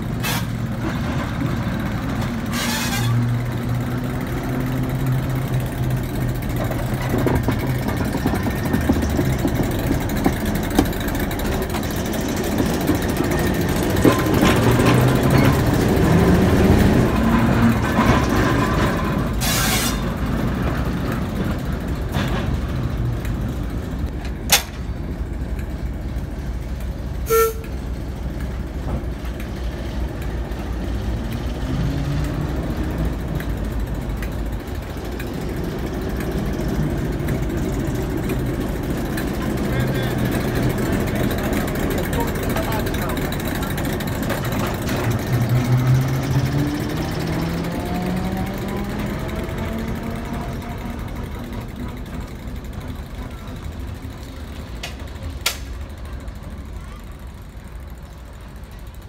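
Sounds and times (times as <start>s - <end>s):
diesel locomotive engine running: 0.0s - 59.0s
brief horn toot: 27.2s - 27.8s
sharp click: 54.8s - 55.8s.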